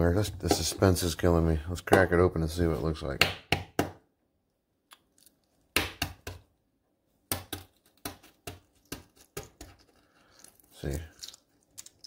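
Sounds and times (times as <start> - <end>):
egg shell cracking on countertop: 7.3 - 12.0.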